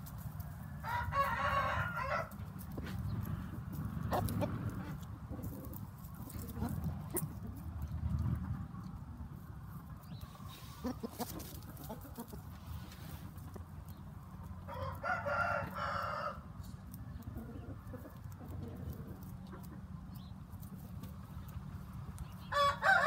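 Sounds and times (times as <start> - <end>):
rooster crowing: 0.8 - 2.4, 14.7 - 16.5, 22.5 - 23.0.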